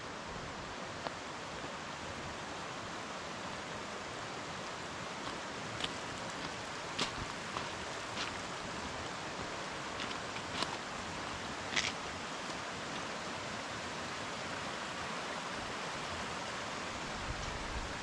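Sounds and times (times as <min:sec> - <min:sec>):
mountain stream rushing: 0:00.0 - 0:18.0
footsteps on gravel: 0:05.2 - 0:13.1.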